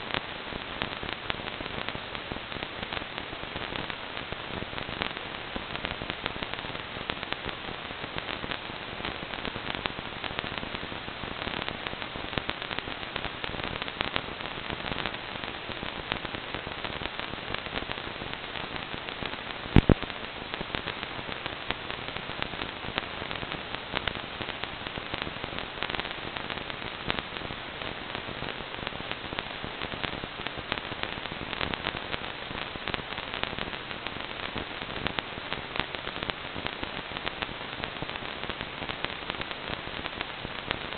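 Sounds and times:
crackling static hiss: 0:00.0 - 0:40.9
loud pop: 0:19.8 - 0:20.0.

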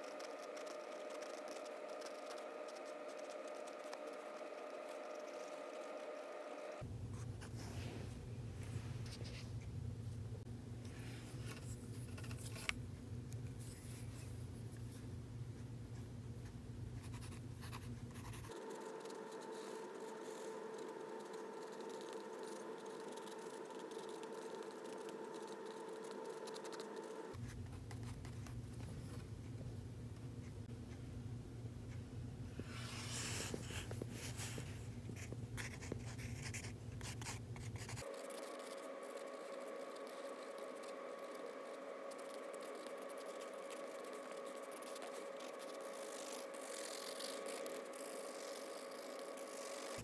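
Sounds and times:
pencil scratching on paper: 0:00.0 - 0:06.8, 0:17.0 - 0:28.4, 0:32.7 - 0:50.0
steady background hum: 0:00.0 - 0:50.0.

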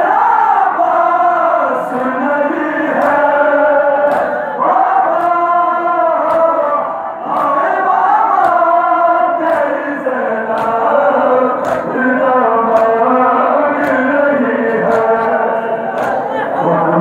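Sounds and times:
crowd of men chanting: 0:00.0 - 0:17.0
rhythmic chest-beating slaps: 0:00.0 - 0:17.0.

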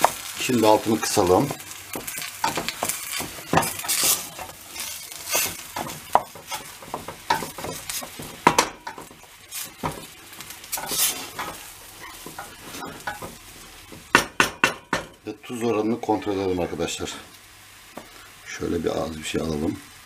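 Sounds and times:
sizzling pan: 0:00.0 - 0:20.0
wooden spoon scraping metal pot: 0:00.9 - 0:13.7.

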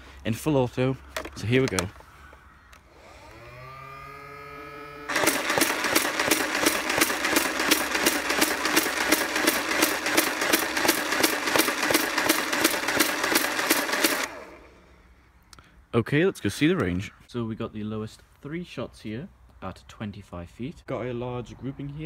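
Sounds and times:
toy blaster motors whining: 0:02.8 - 0:14.8
toy blaster firing rapidly: 0:05.1 - 0:14.7.

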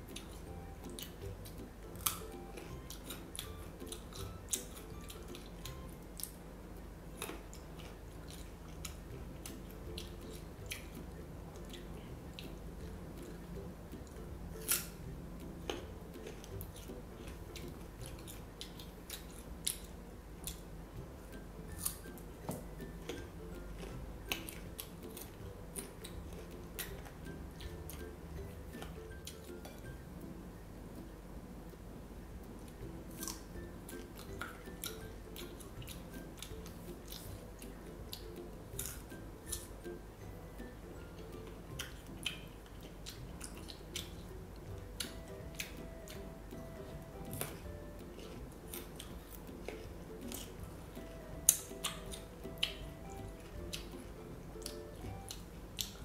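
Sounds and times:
soft background music: 0:00.0 - 0:56.0
fruit crunching when bitten: 0:00.1 - 0:06.4, 0:07.1 - 0:20.7, 0:21.7 - 0:28.1, 0:32.7 - 0:39.7, 0:47.2 - 0:56.0.

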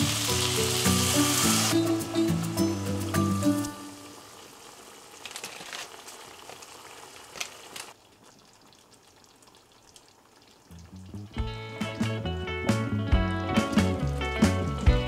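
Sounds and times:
food sizzling in a pot: 0:00.0 - 0:08.0.

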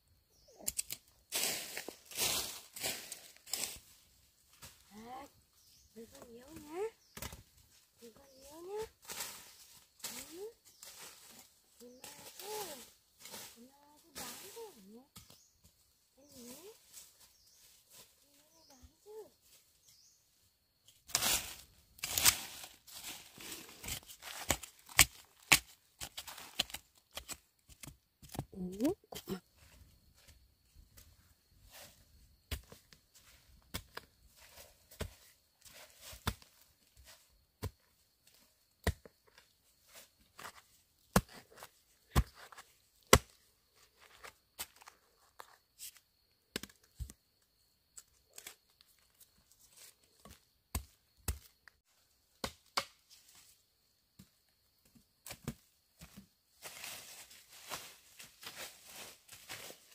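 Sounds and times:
rustle: 0:00.7 - 0:25.6, 0:55.2 - 0:59.9
chops and snaps on plant material: 0:52.4 - 0:53.0.

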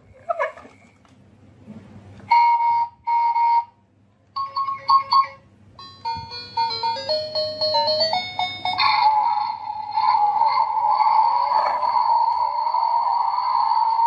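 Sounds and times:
tinny electronic tune: 0:04.4 - 0:14.0.

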